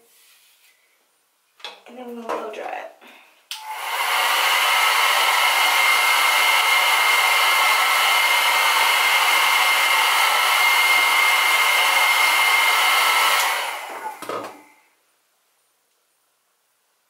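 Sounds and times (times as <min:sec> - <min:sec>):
hair dryer blowing: 0:03.5 - 0:14.9.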